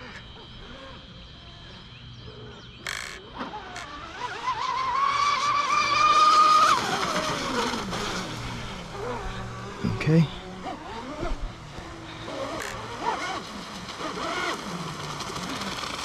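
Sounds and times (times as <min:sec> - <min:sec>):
toy speed boat whining past: 0:00.0 - 0:16.0.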